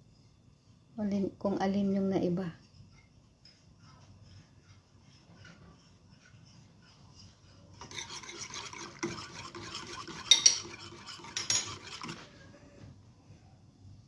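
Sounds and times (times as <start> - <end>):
whisk swishing in saucepan: 2.6 - 12.7
whisk knocking against pan: 3.0 - 12.3.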